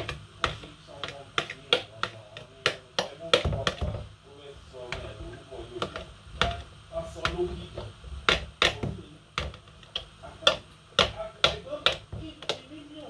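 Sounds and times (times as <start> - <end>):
fork tapping on tub and pot: 0.0 - 4.1, 4.9 - 13.0.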